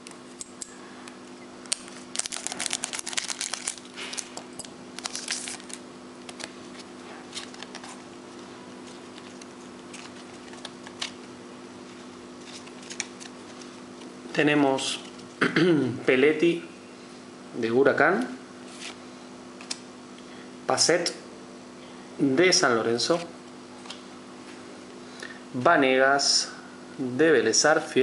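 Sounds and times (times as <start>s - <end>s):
steady low hum: 0.0s - 28.0s
foil pack crinkling and tearing: 1.6s - 8.0s, 12.4s - 13.7s
cards rustling and clicking: 1.6s - 8.1s, 8.8s - 11.3s, 11.9s - 14.1s.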